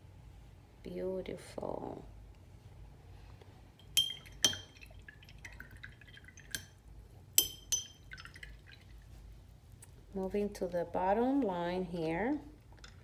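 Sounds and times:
brush clinking against glass jar: 3.8 - 5.0, 7.4 - 8.4.

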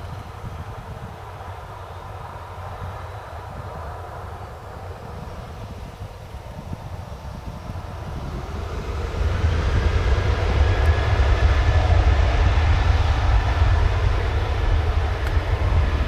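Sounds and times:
jet engines running loud: 0.0 - 16.0
deep rumble: 6.6 - 16.0.

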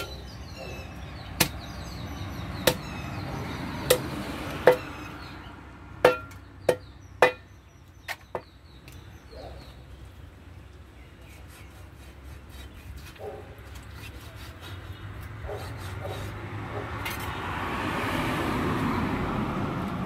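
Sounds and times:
cleaver chopping onto wooden block: 1.4 - 1.6, 2.6 - 2.9, 3.9 - 4.9.

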